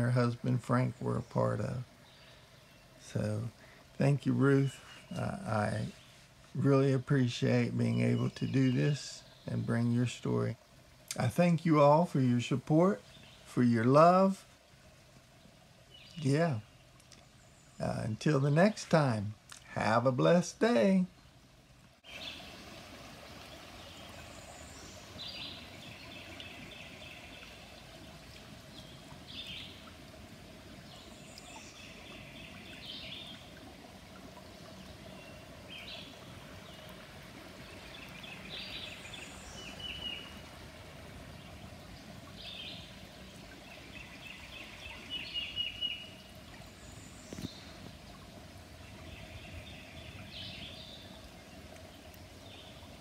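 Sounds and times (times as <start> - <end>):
creek rushing: 0.0 - 53.0
songbird singing with trill: 7.8 - 9.9, 15.9 - 18.0, 22.0 - 22.4, 23.8 - 29.9, 30.8 - 33.5, 34.6 - 37.0, 37.6 - 40.4, 41.4 - 48.2, 48.8 - 51.2.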